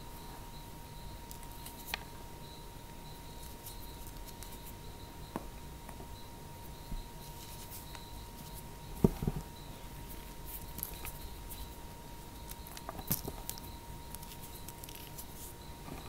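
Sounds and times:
fingers crushing dry cornstarch: 12.4s - 15.6s.

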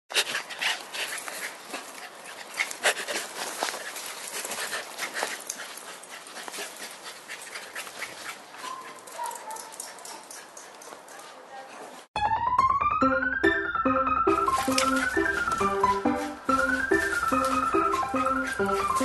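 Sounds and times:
scuffs and clicks: 14.5s - 19.0s.

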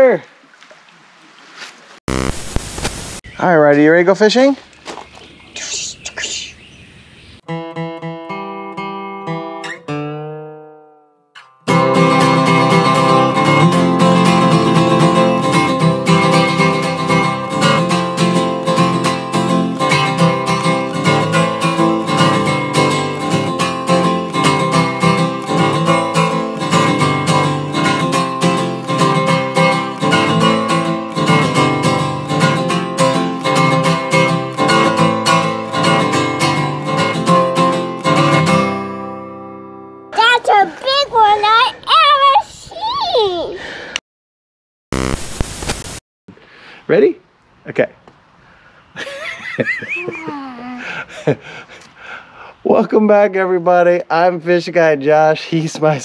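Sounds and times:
strummed acoustic guitar music: 7.4s - 40.7s.

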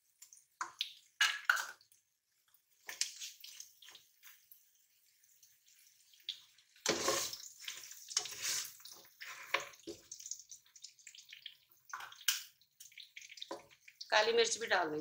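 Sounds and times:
spatula scraping a wok: 6.8s - 9.8s.

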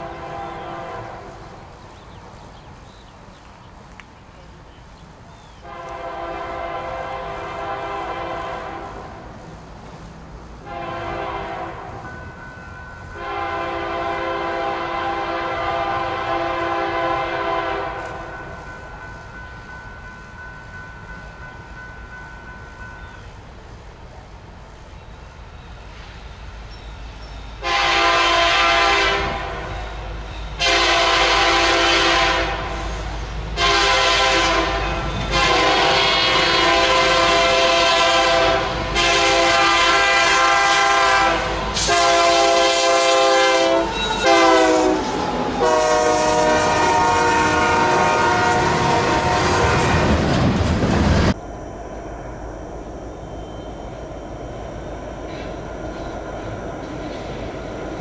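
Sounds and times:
train air horn blasts: 0.0s - 1.5s, 5.6s - 9.2s, 10.6s - 12.1s, 13.1s - 18.4s, 27.6s - 30.0s, 30.6s - 50.2s
locomotive rumble: 0.0s - 58.0s.

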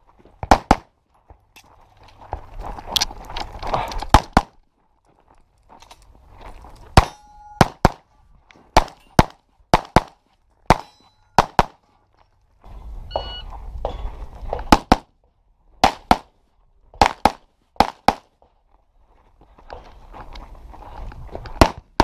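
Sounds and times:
pistol shots in pairs: 0.4s - 0.9s, 7.0s - 8.0s, 8.8s - 11.8s, 15.8s - 16.3s, 17.0s - 18.2s
shot timer beep: 13.1s - 13.4s.

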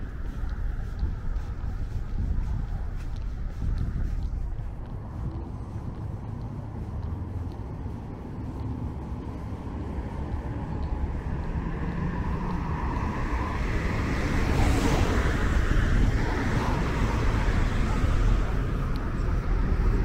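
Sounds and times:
car engines rumbling: 0.0s - 20.0s
tyre noise from passing cars: 0.0s - 20.0s
car passing close: 8.0s - 20.0s.

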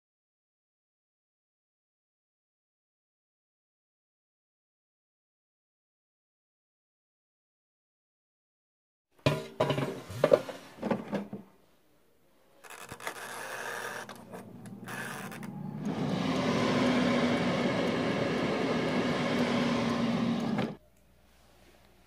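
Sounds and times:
air fryer fan whirring: 14.2s - 20.8s.

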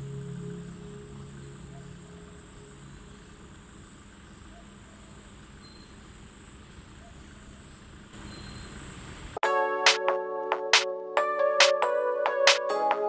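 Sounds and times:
low tone of background music: 0.0s - 3.7s
low rumble: 0.0s - 3.8s
thin high whine: 0.0s - 3.8s.

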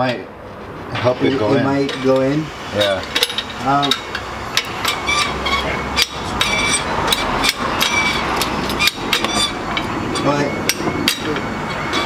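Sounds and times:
metal parts clinking and knocking: 3.1s - 5.4s.

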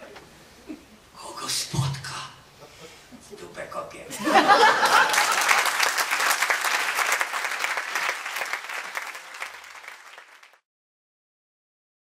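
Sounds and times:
audience applauding: 4.5s - 10.6s.

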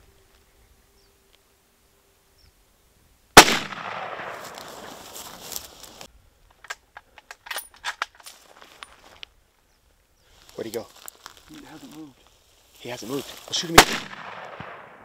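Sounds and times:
rifle shot with echo: 3.4s - 5.0s, 13.7s - 15.0s.

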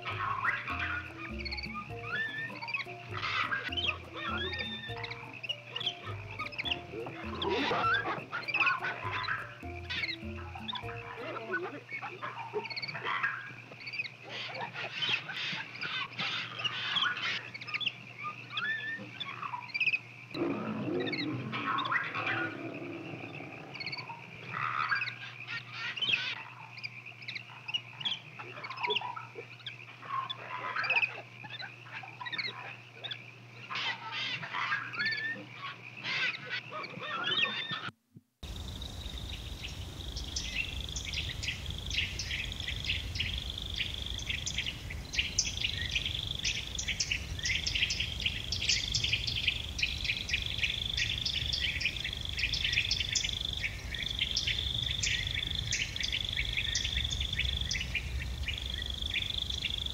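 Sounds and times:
insects chirping: 0.0s - 37.6s, 38.4s - 59.9s
wild birds chirping: 0.0s - 59.9s
low rumble: 38.4s - 59.9s.

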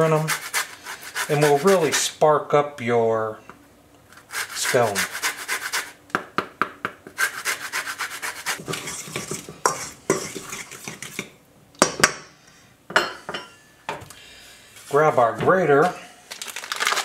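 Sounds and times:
peel scraped across zester: 4.1s - 6.0s.

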